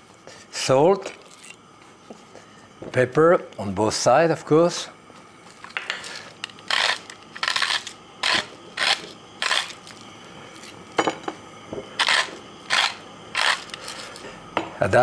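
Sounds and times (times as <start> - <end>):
pepper mill grinding: 1.1 - 1.6, 5.5 - 10.8, 12.0 - 14.3.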